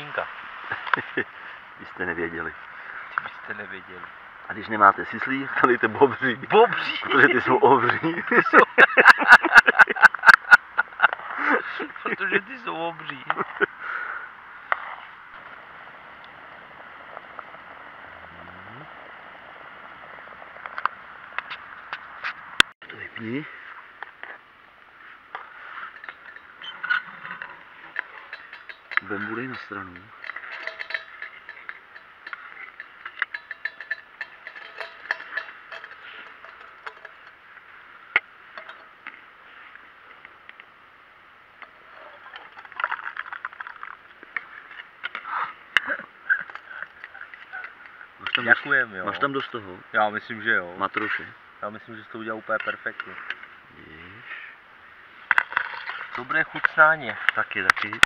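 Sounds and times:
cookware clattering: 0:25.9 - 0:37.4, 0:38.6 - 0:39.0
metal ladle clinking on pot: 0:26.0 - 0:37.4, 0:38.6 - 0:39.0.

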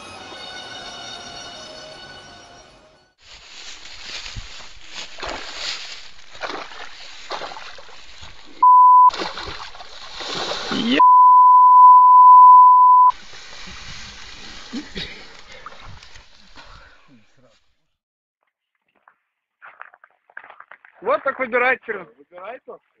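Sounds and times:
water splashing and sloshing: 0:03.4 - 0:11.0, 0:13.1 - 0:16.8
censor bleep: 0:08.6 - 0:09.2, 0:11.0 - 0:13.1.

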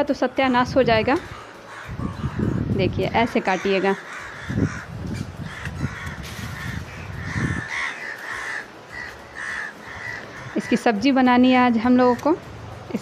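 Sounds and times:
crows cawing: 0:01.2 - 0:10.9.

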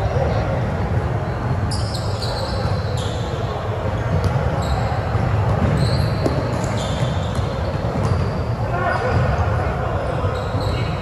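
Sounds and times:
low rumble of large hall: 0:00.0 - 0:11.0
sneakers squeaking: 0:00.0 - 0:11.0.

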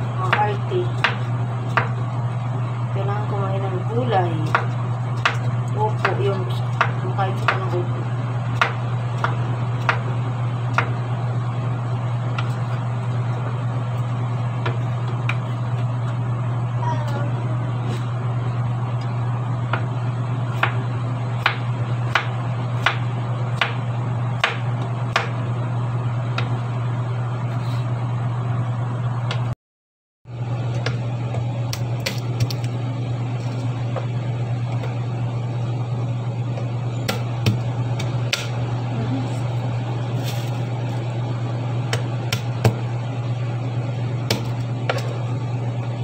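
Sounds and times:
steady low hum: 0:00.0 - 0:29.6, 0:30.3 - 0:46.0
knife chopping on wooden board: 0:00.3 - 0:02.0, 0:04.4 - 0:07.7, 0:08.6 - 0:10.0, 0:21.4 - 0:23.8, 0:24.4 - 0:25.4, 0:37.1 - 0:38.6, 0:44.3 - 0:45.2.

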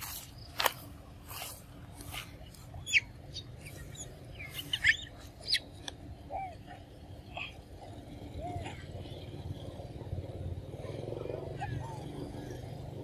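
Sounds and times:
quick sweeping bird calls: 0:02.2 - 0:07.6.

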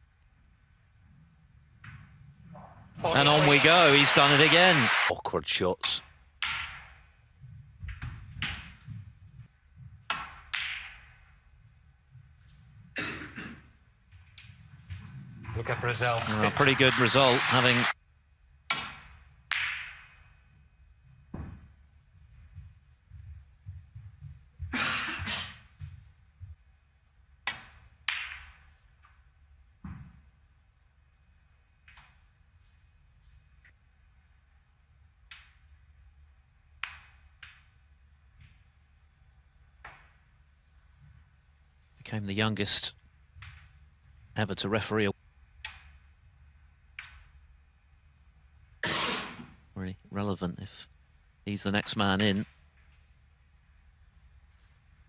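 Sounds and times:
snooker balls clicking: 0:36.8 - 0:37.7, 0:46.9 - 0:47.4.

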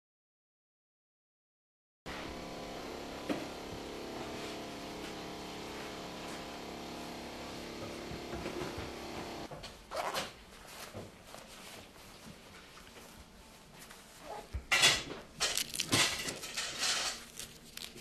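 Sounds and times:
mechanical hum of equipment: 0:02.1 - 0:18.0
zipper being pulled: 0:09.9 - 0:10.2.

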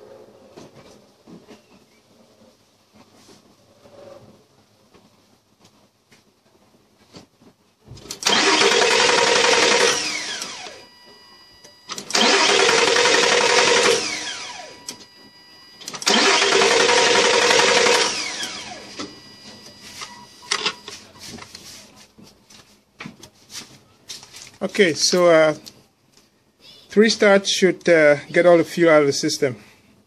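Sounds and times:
car engine starting and dying: 0:08.1 - 0:10.8, 0:11.9 - 0:15.1, 0:15.8 - 0:19.8.

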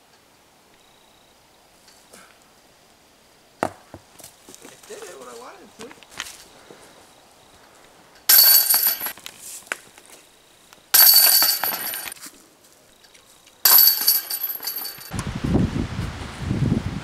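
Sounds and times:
disc hitting metal chains: 0:08.3 - 0:09.2, 0:11.0 - 0:12.2, 0:13.6 - 0:15.1.

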